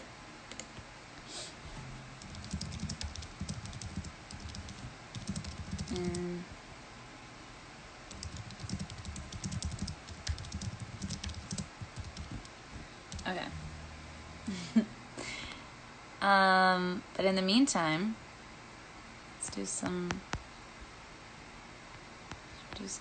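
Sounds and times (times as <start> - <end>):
fingertips tapping on touchscreen: 2.2 - 6.3, 8.1 - 12.5
short hum of a voice: 13.2 - 15.4.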